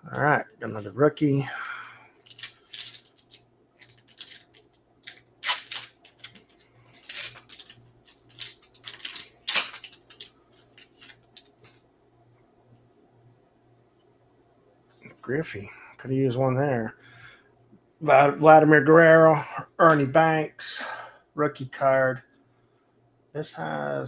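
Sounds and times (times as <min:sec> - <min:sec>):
foil wrapper tearing and crinkling: 0:02.2 - 0:11.8.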